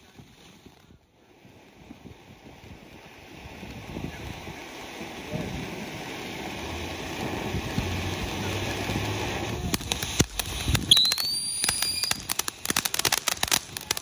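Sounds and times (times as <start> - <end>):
firework crackling pops: 0.0 - 14.0
firework fountain hissing: 0.0 - 14.0
rising whistle: 10.8 - 12.2.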